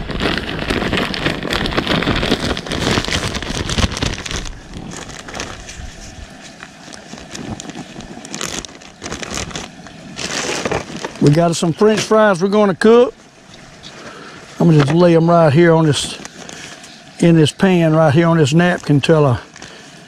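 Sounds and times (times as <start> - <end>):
bag rustling and crackling: 0.0 - 17.2, 18.4 - 20.0.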